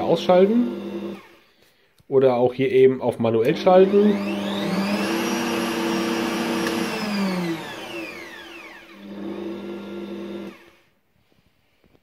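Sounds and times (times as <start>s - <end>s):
stand mixer motor whine: 0.0s - 1.4s, 3.5s - 10.9s.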